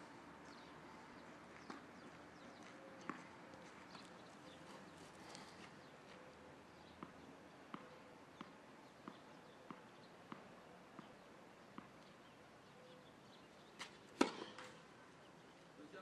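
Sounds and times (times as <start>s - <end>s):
tennis ball bouncing on court: 7.0s - 11.1s, 11.7s - 12.0s, 13.8s - 14.7s
racket striking ball: 14.2s - 14.7s.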